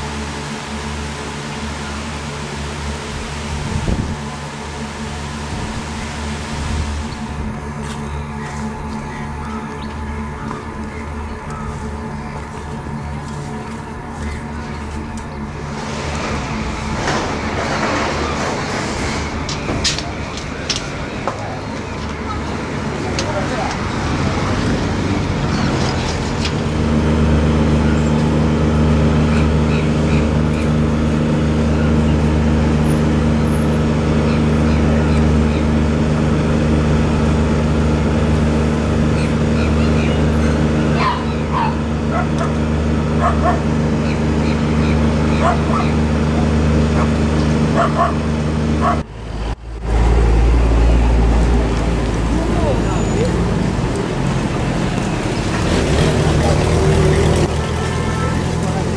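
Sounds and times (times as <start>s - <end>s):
low engine hum: 0.0s - 58.9s
van driving past: 23.4s - 58.9s
dog barking: 41.0s - 42.6s, 43.2s - 46.0s, 47.8s - 48.2s, 48.8s - 49.0s.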